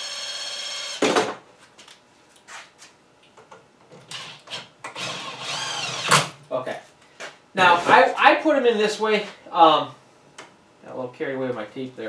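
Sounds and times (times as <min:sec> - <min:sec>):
cordless drill whining: 0:00.0 - 0:01.0, 0:04.1 - 0:06.3.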